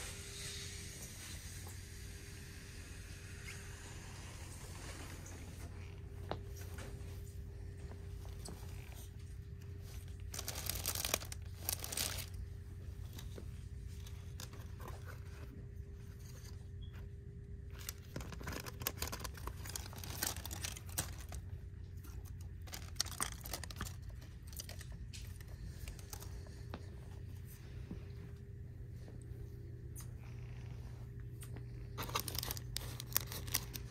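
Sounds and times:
steady low hum: 0.0s - 33.9s
plastic packaging crinkling: 8.2s - 12.4s, 17.7s - 26.6s, 31.9s - 33.9s.

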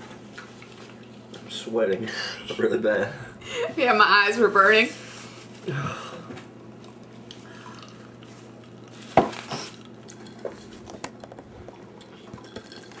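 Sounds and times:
tableware clinking: 12.3s - 13.0s.

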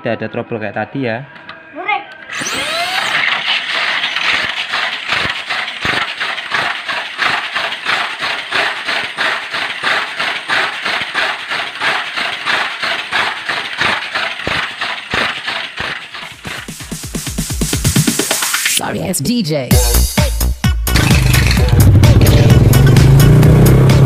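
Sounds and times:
toy car motor whirring: 2.3s - 16.8s, 20.9s - 21.9s
wheels clattering on plastic track: 2.3s - 17.0s, 21.0s - 21.7s.

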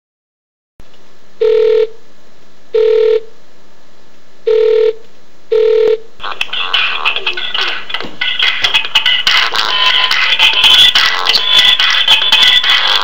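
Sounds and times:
music: 6.2s - 13.0s.

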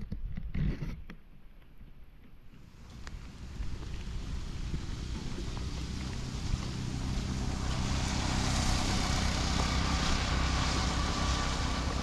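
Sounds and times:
rain on flooded road: 2.6s - 12.0s
tyres hissing through water: 2.6s - 12.0s
wind rumbling on microphone: 2.6s - 12.0s.

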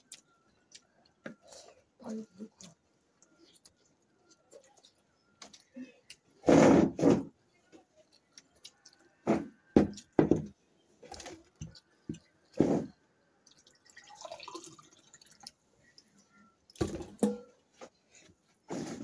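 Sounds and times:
water poured into glass: 13.6s - 15.5s.

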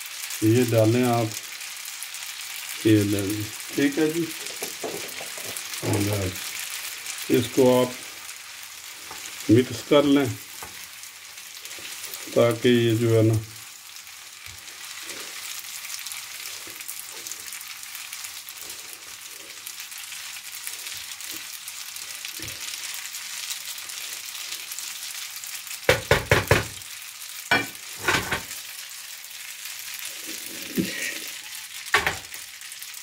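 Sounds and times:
food sizzling in a frying pan: 0.0s - 33.0s
sharp knocks against pan: 25.9s - 26.7s.

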